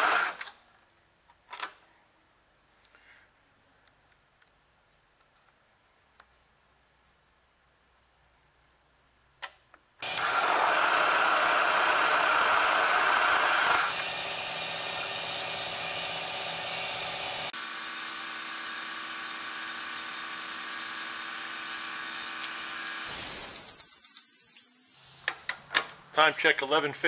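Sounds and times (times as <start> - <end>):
drill bit cutting metal: 10.0 - 24.9.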